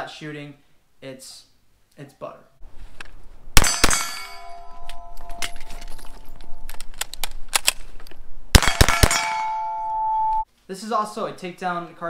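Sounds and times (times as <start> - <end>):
gunshots: 3.6 - 4.4, 8.5 - 9.6.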